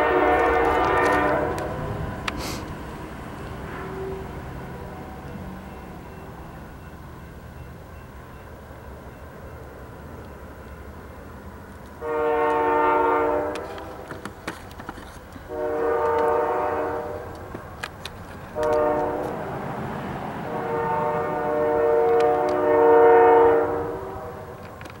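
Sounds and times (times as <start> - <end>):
locomotive air horn blasts: 0.0 - 2.8, 3.6 - 6.1, 12.0 - 14.2, 15.4 - 17.4, 18.5 - 19.6, 20.4 - 24.6.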